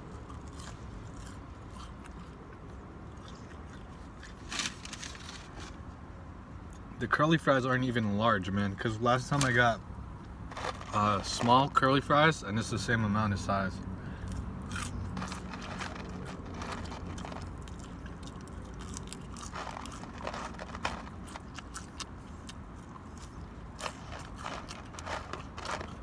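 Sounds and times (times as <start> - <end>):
person chewing crunchy food: 0.0 - 5.1, 10.5 - 11.4, 14.2 - 26.0.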